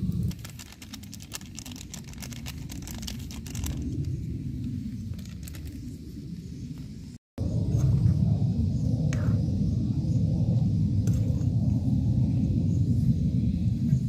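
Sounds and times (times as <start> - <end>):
low rumble: 0.0 - 14.0
fire crackling and popping: 0.1 - 4.2.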